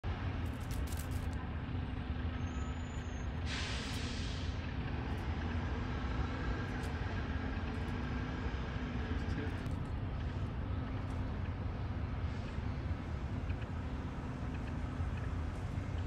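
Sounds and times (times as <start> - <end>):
low rumble of city traffic: 0.0 - 16.0
truck air brakes hissing: 2.4 - 4.8.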